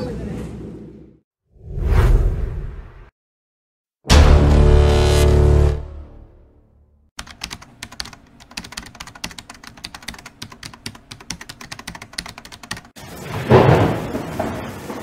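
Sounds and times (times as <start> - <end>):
keyboard key clicks: 7.2 - 12.9.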